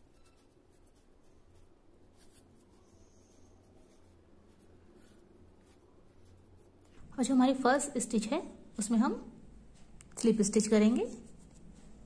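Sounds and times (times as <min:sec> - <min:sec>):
crochet hook rustling yarn: 0:00.0 - 0:07.0.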